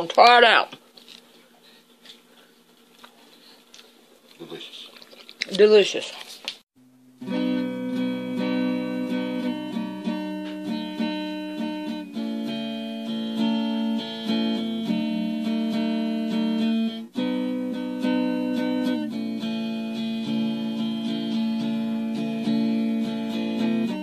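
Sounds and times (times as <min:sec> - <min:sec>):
plucked guitar music: 0:07.1 - 0:24.0.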